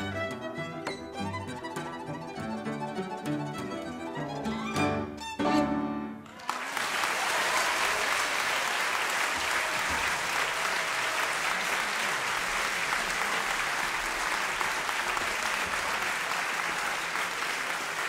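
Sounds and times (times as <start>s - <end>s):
audience applauding: 6.2s - 18.0s.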